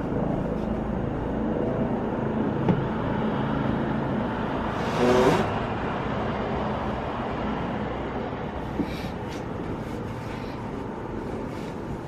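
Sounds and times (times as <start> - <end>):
traffic rumble: 0.0 - 12.0
vehicle passing close by: 2.0 - 8.6.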